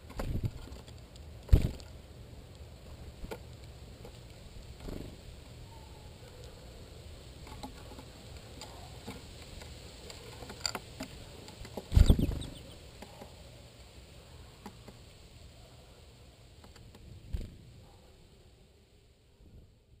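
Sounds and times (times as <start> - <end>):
birds tapping seeds on wooden tray: 7.4 - 13.4, 14.6 - 15.0, 16.6 - 17.0.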